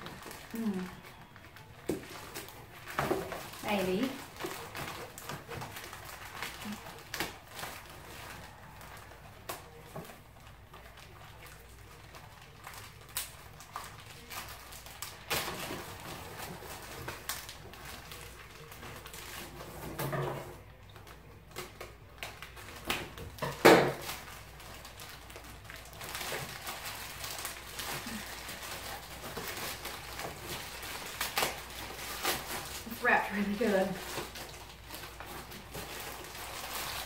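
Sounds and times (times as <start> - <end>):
plastic wrapping crinkling: 0.0 - 37.0
scissors cutting plastic: 20.5 - 37.0.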